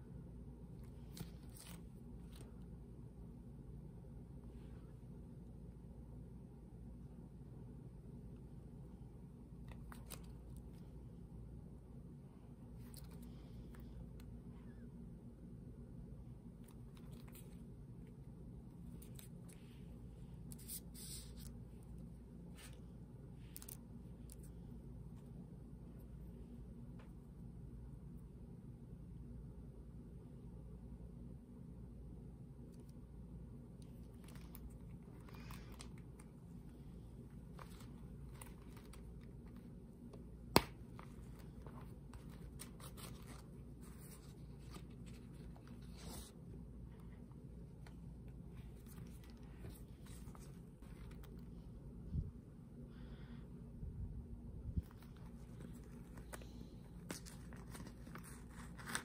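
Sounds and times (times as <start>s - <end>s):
steady low hum: 0.0s - 59.0s
rustling leather wallet: 0.8s - 2.6s, 33.8s - 51.5s, 54.8s - 59.0s
scratchy rustles: 54.8s - 59.0s.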